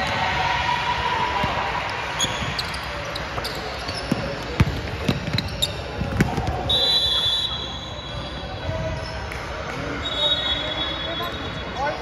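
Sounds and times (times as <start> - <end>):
sneaker squeaks: 2.1 - 9.3.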